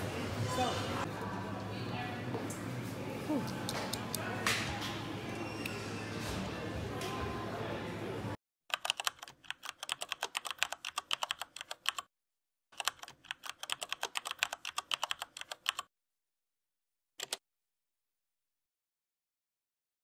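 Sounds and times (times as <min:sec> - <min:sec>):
keyboard key clicks: 0:17.2 - 0:17.4.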